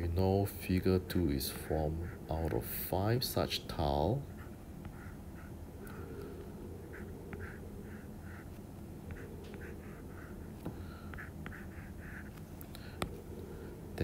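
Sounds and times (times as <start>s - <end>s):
steady low hum: 0.0s - 14.0s
stylus scratching on tablet: 1.6s - 2.6s, 3.5s - 6.0s, 6.8s - 13.3s
stylus tapping: 6.9s - 13.2s.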